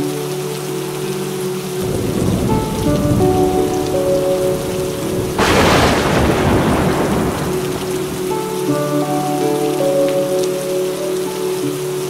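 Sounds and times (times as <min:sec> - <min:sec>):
soft background music: 0:00.0 - 0:12.0
steady rain: 0:00.0 - 0:12.0
sharp crack of thunder: 0:01.8 - 0:08.8
thunder rumbling: 0:01.8 - 0:10.0.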